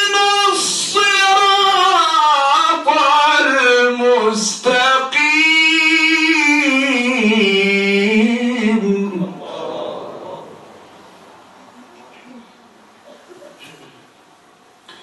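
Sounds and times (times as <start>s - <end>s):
man reciting melodically: 0.0s - 10.6s.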